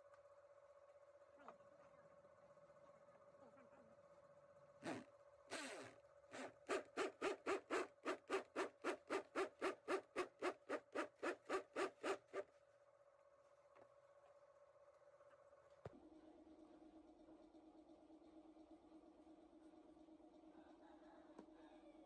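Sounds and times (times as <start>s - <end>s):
electric drill boring into horn: 4.8s - 12.4s.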